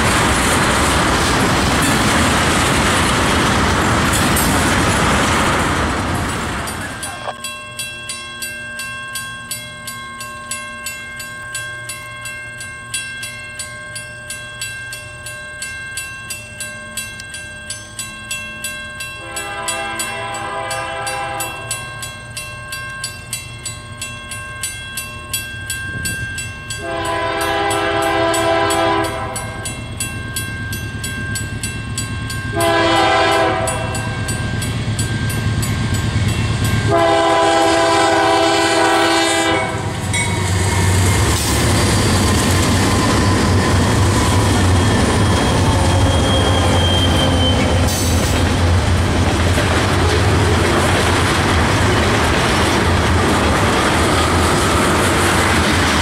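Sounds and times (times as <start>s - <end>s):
tank cars clattering over rails: 0.0s - 7.4s, 40.3s - 56.0s
locomotive engine and wheel rumble: 0.0s - 56.0s
crossing bell ticking: 6.5s - 56.0s
locomotive horn blasts: 19.2s - 21.8s, 26.8s - 29.6s, 32.5s - 34.0s, 36.9s - 40.0s.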